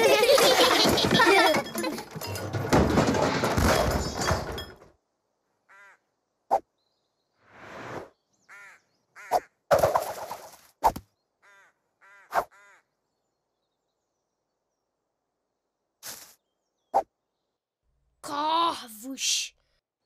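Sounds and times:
cartoon crow cawing: 5.7 - 6.1, 8.5 - 9.6, 11.4 - 12.9.

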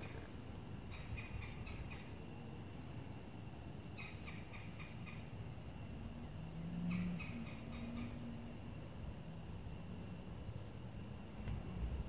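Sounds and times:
bird chirping: 0.0 - 2.4, 3.8 - 5.3
low steady hum: 0.0 - 12.0.

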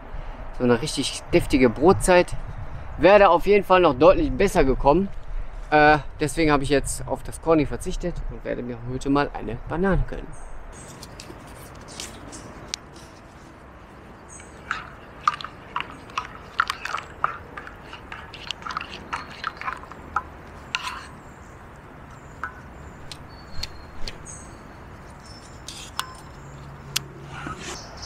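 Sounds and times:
spork stirring in metal mug: 14.4 - 23.7.

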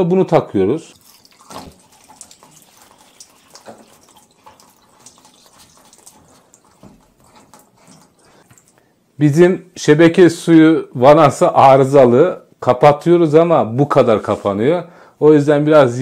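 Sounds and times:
water trickling and dripping: 0.9 - 8.9.

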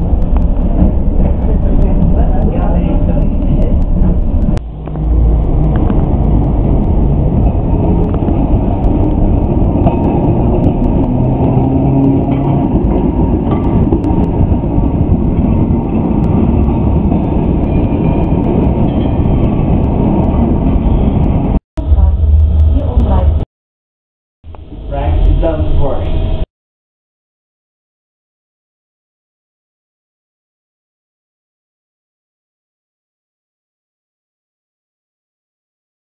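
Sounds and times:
tram rumbling on track: 0.0 - 23.5, 24.5 - 26.5.

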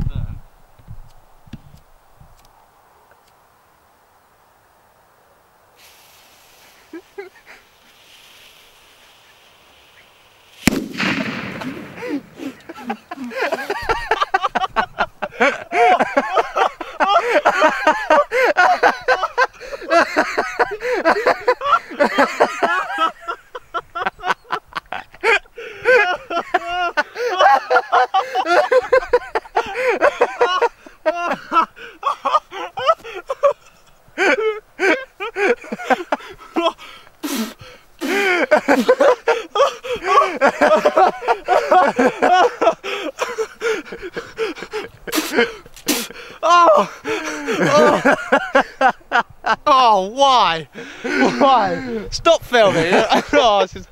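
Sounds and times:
people laughing: 6.8 - 7.6, 11.0 - 49.8, 50.7 - 53.8
breathy intakes: 11.2 - 13.8, 25.2 - 26.0, 30.8 - 33.4, 34.2 - 40.5, 42.8 - 48.0, 50.7 - 52.1.

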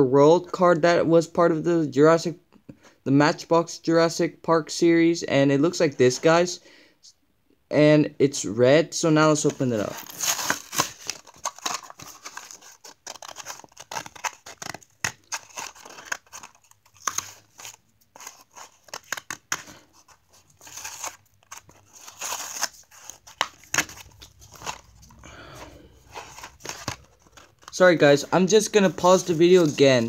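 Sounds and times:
card ripping: 9.5 - 30.0
plastic blister crinkling: 9.7 - 30.0.

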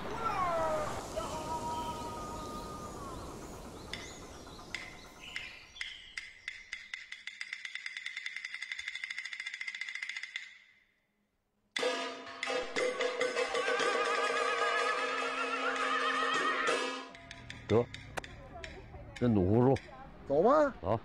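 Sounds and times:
faint outdoor background: 0.0 - 11.8, 13.3 - 21.0
wood-block clicks: 4.7 - 10.7, 17.1 - 20.0.

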